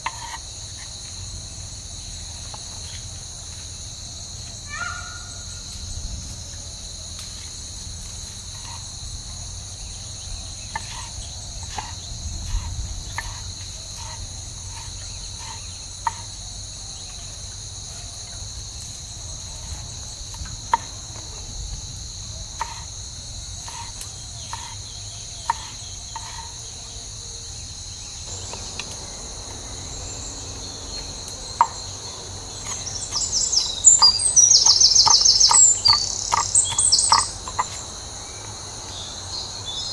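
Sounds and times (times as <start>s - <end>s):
insects chirping: 0.0s - 39.9s.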